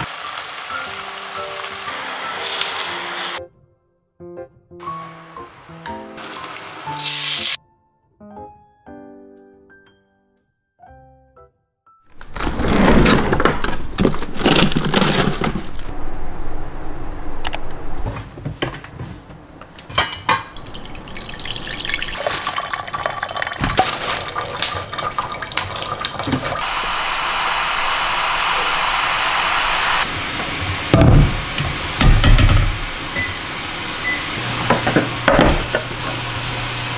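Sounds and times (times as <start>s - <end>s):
water spraying onto lettuce: 0.0s - 3.4s, 6.2s - 7.6s
refrigerator drawer opening: 12.1s - 15.9s
food packages rustling: 12.1s - 16.0s, 22.2s - 23.0s, 23.6s - 24.6s.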